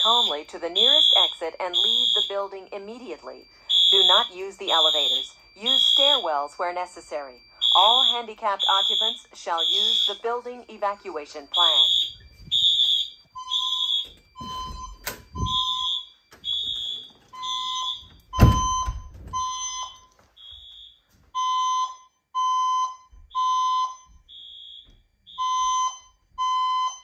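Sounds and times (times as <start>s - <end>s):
spoken evacuation messages: 0.0s - 12.9s
fire alarm beeps: 0.0s - 27.0s.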